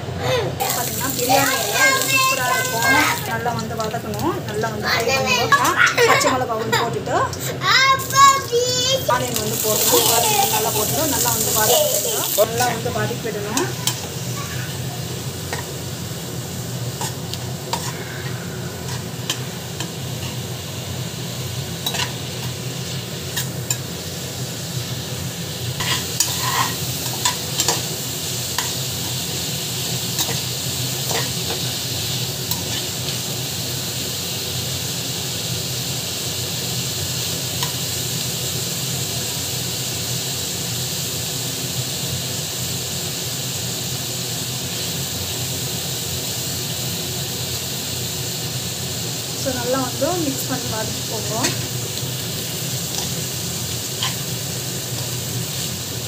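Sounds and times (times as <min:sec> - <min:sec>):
onions sizzling in hot oil: 0:00.0 - 0:56.0
spatula scraping pot: 0:17.0 - 0:19.5, 0:25.8 - 0:27.8.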